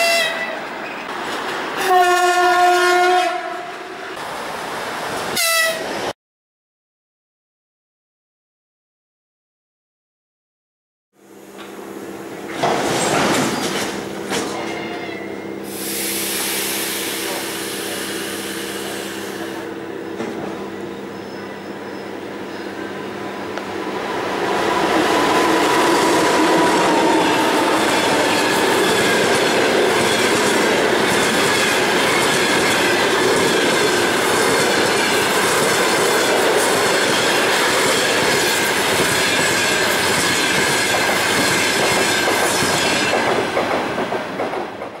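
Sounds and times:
train wheels rushing on rail: 11.6 - 15.0, 15.6 - 45.0
clickety-clack over rail joints: 27.0 - 45.0.

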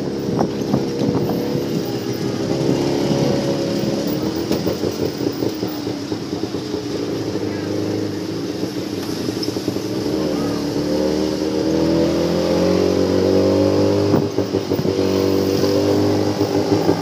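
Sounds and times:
auto rickshaw engine accelerating: 0.0 - 17.0.

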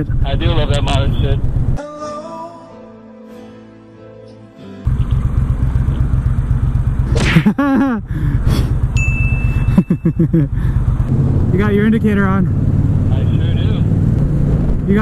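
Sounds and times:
motorcycle exhaust rumble: 0.0 - 1.8, 4.8 - 15.0
steady high beep: 9.0 - 10.3.

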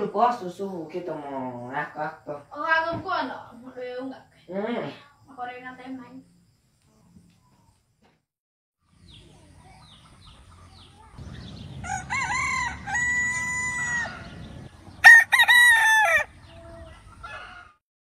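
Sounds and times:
rooster crowing: 11.8 - 16.6, 17.2 - 17.8.

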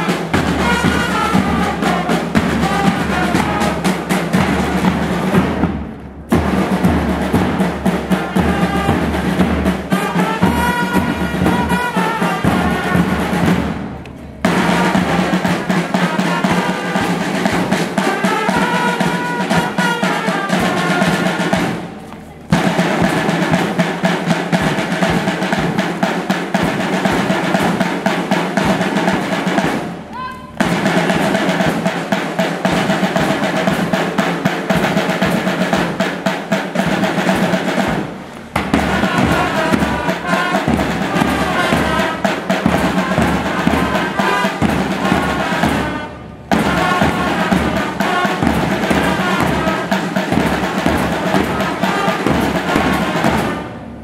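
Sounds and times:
marching band brass: 0.0 - 54.0
snare drums: 0.0 - 54.0
bass drum beats: 36.7 - 53.7.

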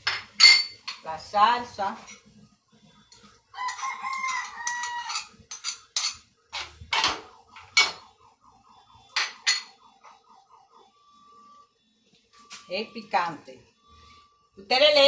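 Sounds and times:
spoon clinking on metal pot: 0.0 - 1.0, 3.1 - 7.2, 9.2 - 9.7
rooster crowing: 3.5 - 5.3.

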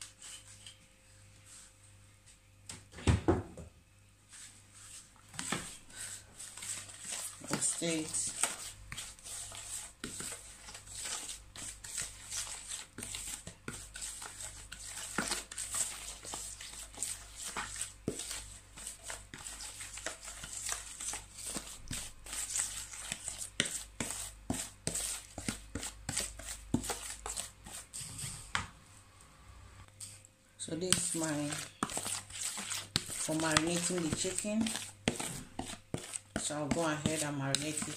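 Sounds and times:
spoon scraping plastic bowl: 6.4 - 28.5, 30.8 - 37.9.

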